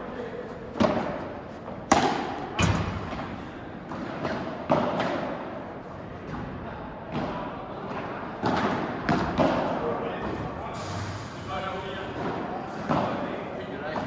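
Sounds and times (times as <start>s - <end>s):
ball hit by rackets: 0.8s - 5.4s
heavy deep thud: 2.6s - 3.4s.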